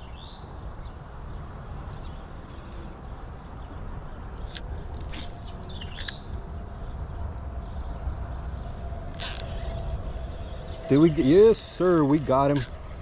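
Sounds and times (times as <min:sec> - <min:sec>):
high bird chirps: 0:04.4 - 0:06.9.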